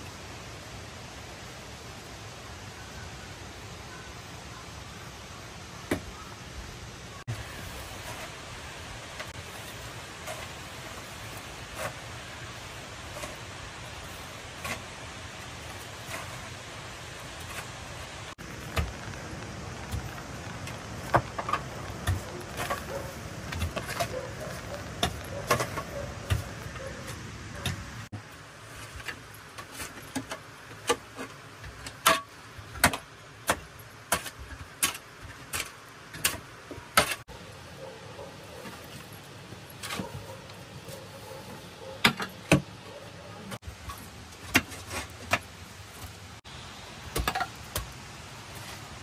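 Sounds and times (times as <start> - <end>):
background hiss: 0.0 - 49.0
pickaxe striking earth and stones: 18.4 - 24.1, 31.7 - 37.2, 47.1 - 48.0.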